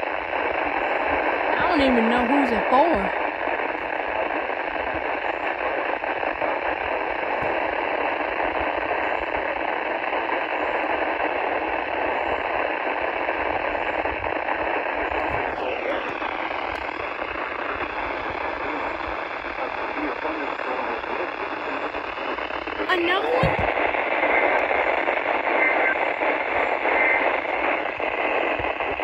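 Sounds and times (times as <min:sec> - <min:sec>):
faint steady tones: 0:00.0 - 0:29.0
radio static hiss: 0:00.0 - 0:29.0.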